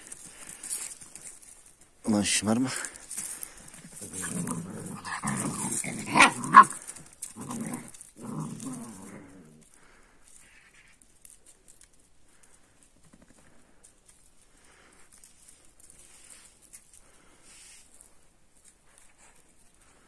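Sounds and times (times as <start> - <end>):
puppies growling: 3.4 - 10.1.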